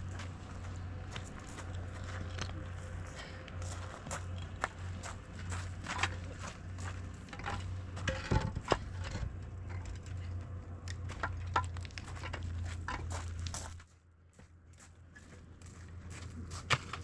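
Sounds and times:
footsteps on gravel: 0.0s - 8.3s, 10.0s - 17.0s
steady low hum: 0.0s - 17.0s
concrete blocks knocking and scraping: 7.2s - 13.5s.

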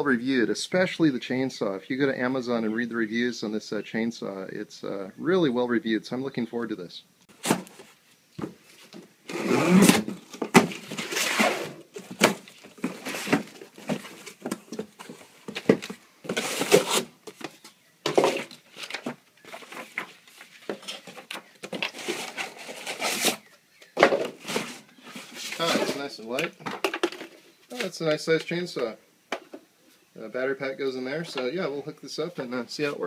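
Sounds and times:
cardboard rustling and scraping: 7.3s - 26.3s.

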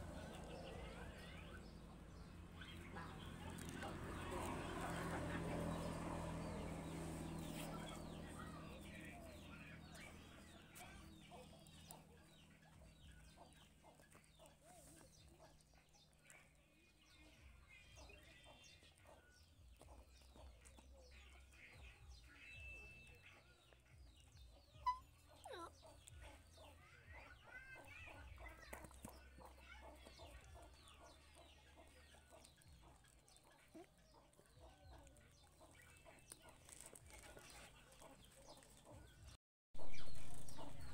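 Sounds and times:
chickens clucking: 22.8s - 40.9s.

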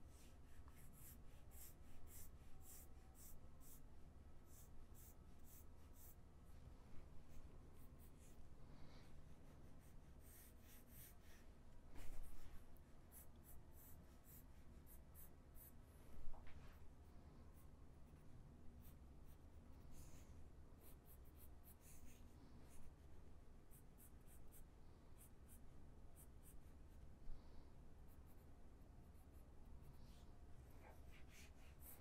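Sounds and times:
low steady hum: 0.0s - 32.0s
pen scratching while sketching: 0.1s - 3.8s, 4.5s - 6.2s, 9.4s - 11.5s, 13.0s - 15.8s, 17.5s - 22.2s, 30.8s - 32.0s.

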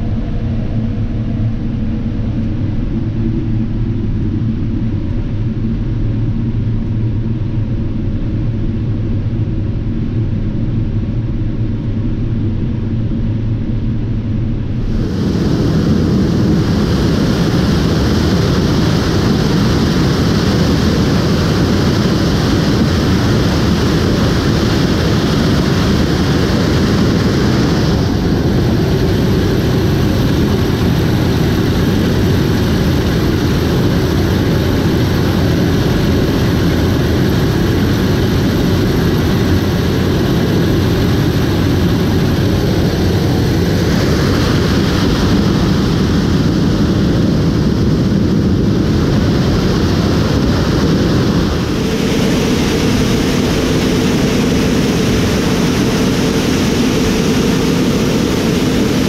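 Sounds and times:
combine harvester running: 14.6s - 59.0s.

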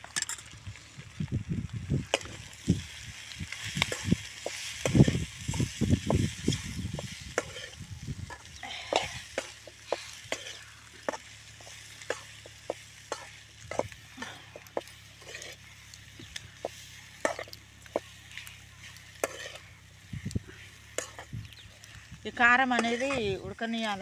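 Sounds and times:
frying sizzle: 0.0s - 24.0s
metal spoon scraping pan: 6.5s - 12.4s, 14.7s - 15.7s, 16.6s - 19.8s, 20.6s - 21.4s, 22.6s - 24.0s.

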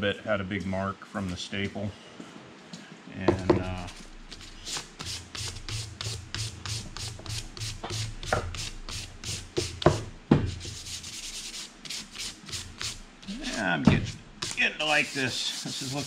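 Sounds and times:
sanding wooden handle: 4.7s - 9.8s, 10.5s - 16.0s.

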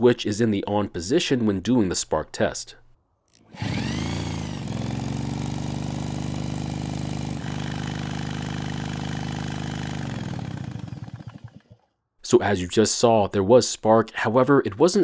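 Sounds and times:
power drill spinning engine: 3.4s - 11.9s.

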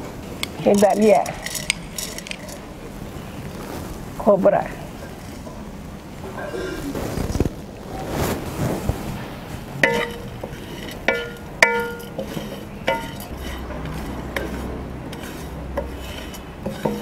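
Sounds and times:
spatula scraping dry mix: 9.6s - 17.0s
spatula knocking metal pan: 9.8s - 17.0s.

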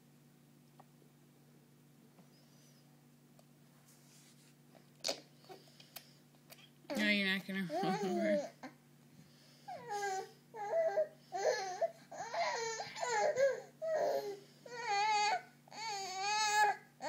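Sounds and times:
baby crying: 9.7s - 16.9s.

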